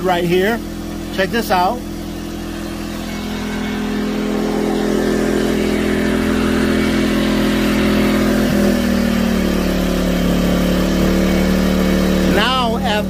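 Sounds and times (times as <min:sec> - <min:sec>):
generator engine running: 0:00.0 - 0:13.0.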